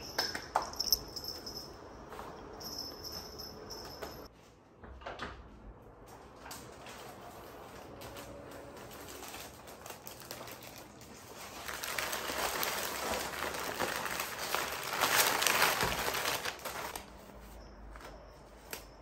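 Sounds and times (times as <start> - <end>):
plastic flower sleeves crinkling: 6.8 - 19.0.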